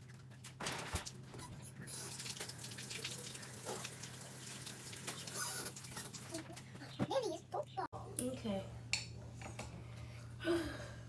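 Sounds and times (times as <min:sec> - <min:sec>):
faucet running water: 0:01.9 - 0:06.4.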